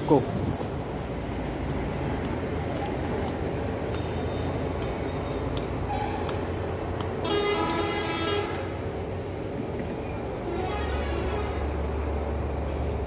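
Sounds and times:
horn blaring: 7.2 - 8.8, 10.5 - 11.9.

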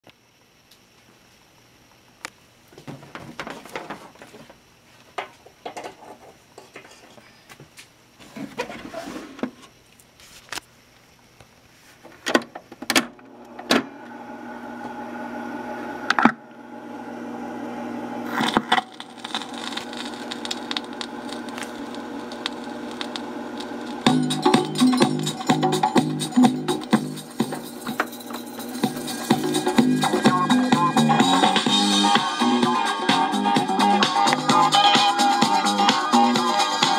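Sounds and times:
turntable motor hum: 13.2 - 36.9
music through small speaker: 21.2 - 36.9.

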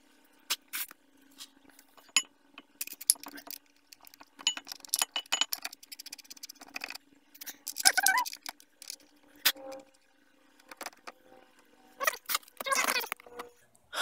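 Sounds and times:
metal clicks and clinks: 2.0 - 9.0.

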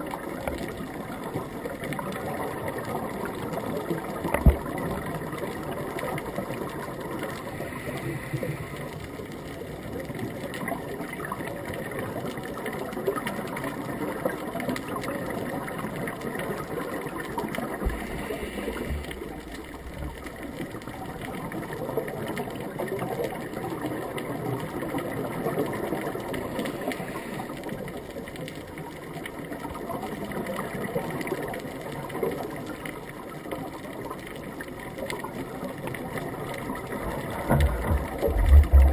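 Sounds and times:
fine underwater crackling: 0.0 - 38.9
muffled underwater rumble: 0.0 - 38.9.

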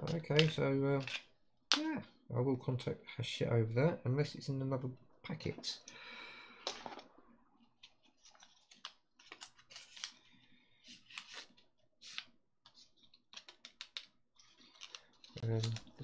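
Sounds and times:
plastic parts clicking: 0.0 - 1.8, 13.0 - 16.0.

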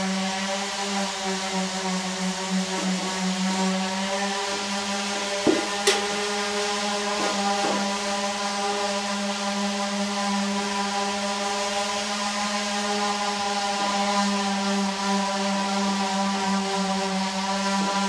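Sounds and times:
steady buzzing hum: 0.0 - 11.1.

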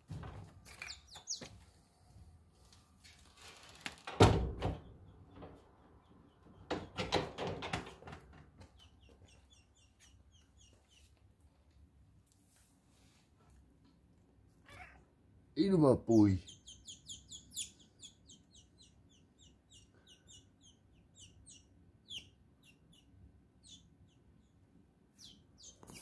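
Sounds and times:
knocks and rustles: 0.0 - 1.7, 6.6 - 9.3
small high bird peeps: 0.7 - 1.6, 8.8 - 11.2, 16.4 - 26.0.

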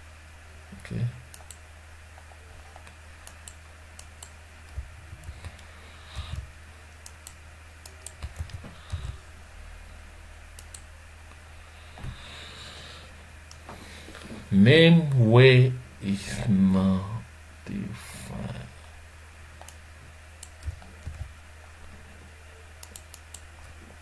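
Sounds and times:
steady low hum: 0.0 - 24.0
computer keyboard typing: 2.7 - 9.2, 20.4 - 21.3.

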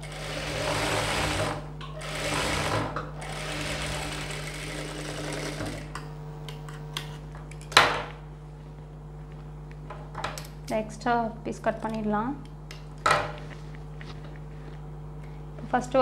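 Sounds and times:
sewing machine stitching: 0.0 - 5.9.

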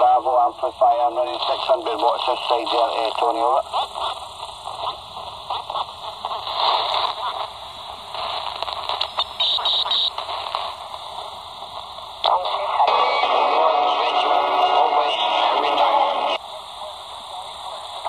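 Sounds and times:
faint crackles: 0.0 - 13.8
radio static hiss: 0.0 - 18.0.

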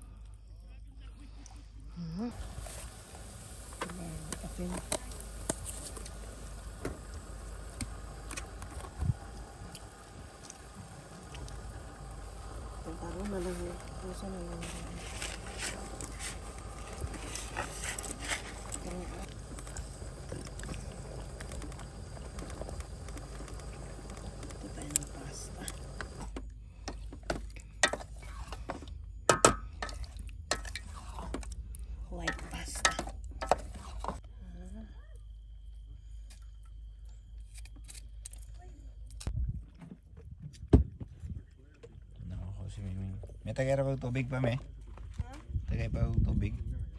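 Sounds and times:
low steady hum: 0.0 - 46.9
water bubbling at a rolling boil: 2.2 - 34.2, 39.2 - 46.5
wooden spoon scraping a pot: 13.2 - 26.3, 32.3 - 34.2.

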